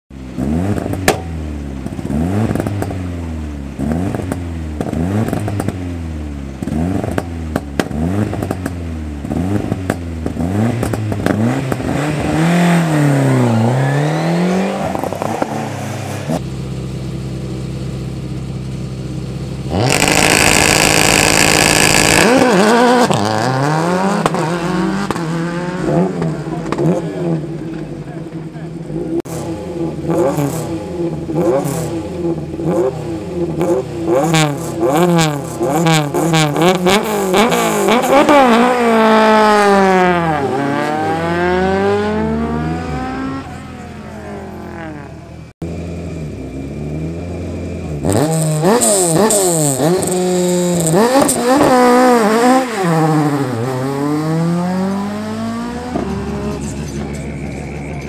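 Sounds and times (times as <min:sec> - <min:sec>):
rally car engine revving: 0:00.2 - 0:58.0.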